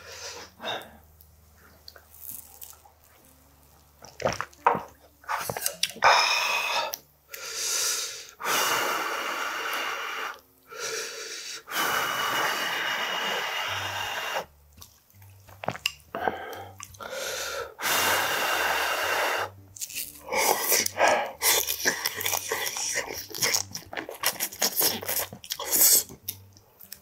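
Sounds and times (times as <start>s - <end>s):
blowing and slurping hot food: 7.7s - 14.5s, 15.6s - 19.6s, 20.2s - 26.2s
wet chewing clicks: 14.8s - 17.0s, 19.8s - 27.0s.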